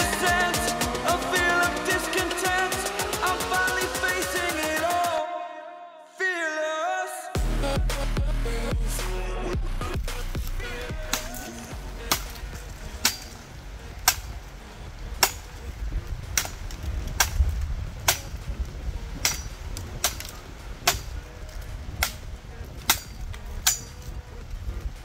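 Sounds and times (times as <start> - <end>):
low rumble: 7.4 - 13.0
machete chopping a branch: 10.0 - 13.4, 14.0 - 14.4, 15.2 - 15.4, 16.4 - 17.4, 18.0 - 18.4, 19.2 - 21.2, 22.8 - 24.0.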